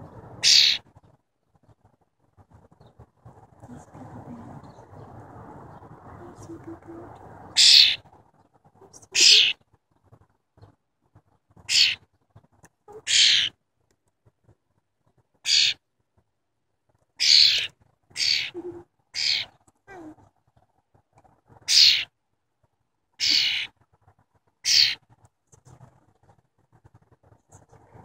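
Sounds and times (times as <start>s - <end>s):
young bird harsh raspy calls: 0.4s - 0.8s, 7.5s - 8.1s, 9.0s - 9.6s, 11.6s - 12.1s, 12.9s - 13.6s, 15.4s - 15.8s, 17.2s - 19.6s, 21.6s - 22.1s, 23.2s - 23.8s, 24.6s - 25.0s.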